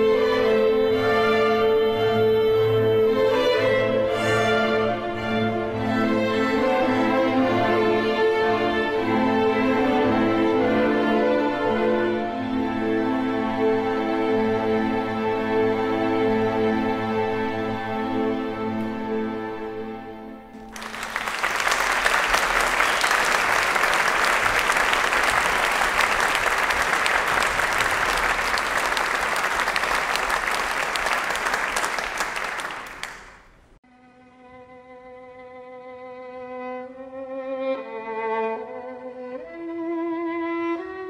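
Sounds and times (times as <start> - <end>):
audience applauding: 20.6 - 33.7.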